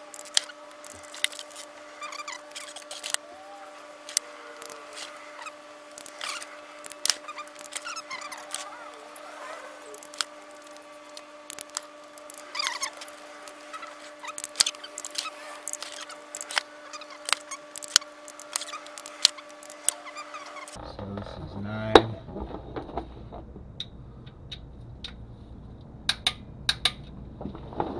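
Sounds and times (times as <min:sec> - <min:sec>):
wrench clicks: 0:00.0 - 0:03.2, 0:04.1 - 0:20.8
steady hum: 0:00.0 - 0:27.9
bolt squeaks: 0:04.6 - 0:10.8, 0:11.5 - 0:20.8.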